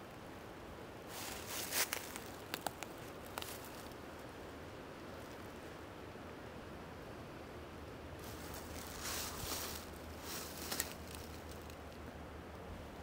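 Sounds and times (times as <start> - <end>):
low background hiss: 0.0 - 13.0
rustling in leaves and brush: 1.0 - 5.8, 8.1 - 12.2.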